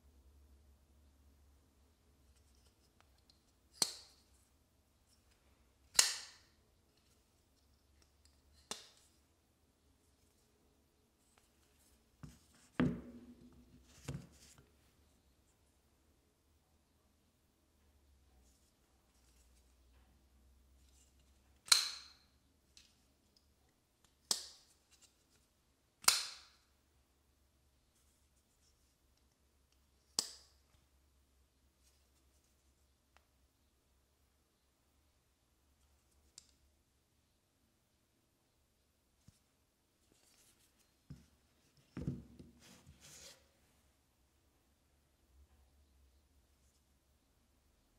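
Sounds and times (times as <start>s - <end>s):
knife blade clicking open and shut: 5.9s - 6.5s, 21.7s - 22.2s, 26.0s - 26.6s.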